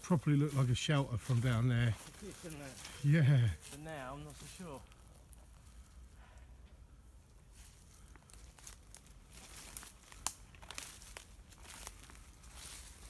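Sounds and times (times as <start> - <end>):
footsteps crunching dry leaves: 0.0 - 6.1, 7.3 - 13.0
twig snapping: 8.2 - 12.1.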